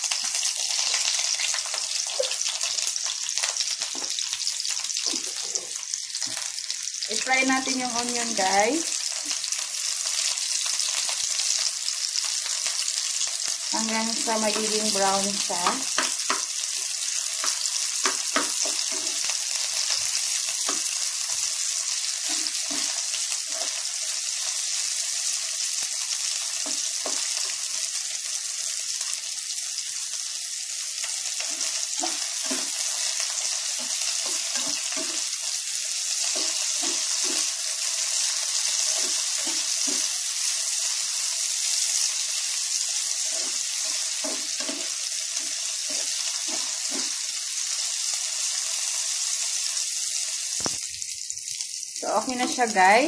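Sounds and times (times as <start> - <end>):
onions sizzling in hot oil: 0.0 - 53.0
spatula scraping and tapping a pan: 15.6 - 21.1, 22.0 - 23.8, 26.6 - 27.6, 31.4 - 35.4, 36.2 - 37.6, 38.6 - 40.1, 43.2 - 47.2.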